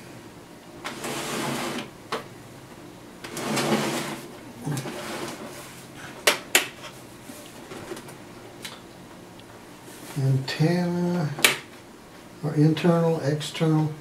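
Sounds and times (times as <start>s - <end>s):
tv set scraping on wooden table: 0.8s - 1.9s, 3.2s - 5.6s.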